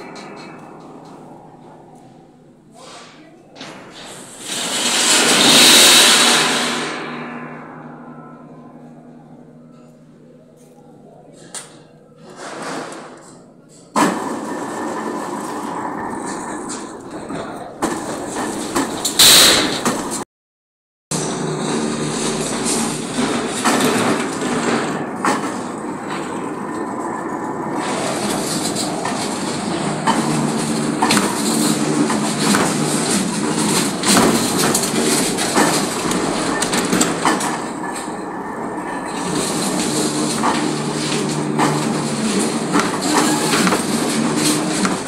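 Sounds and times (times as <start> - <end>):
belt-driven machine humming: 21.1 - 45.0.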